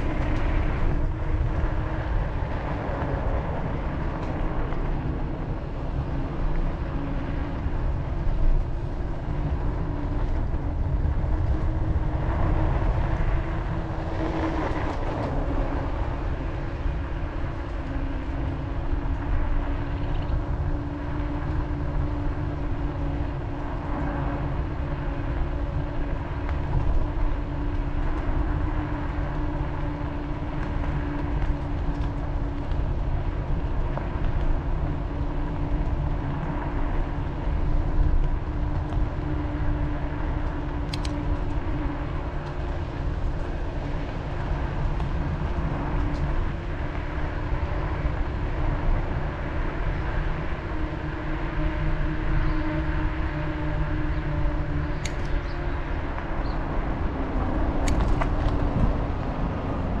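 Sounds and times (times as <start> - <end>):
bicycle tyres on pavement: 0.0 - 60.0
wavering low hum: 0.0 - 60.0
wind on microphone: 0.0 - 60.0
faint clicks: 40.4 - 41.6.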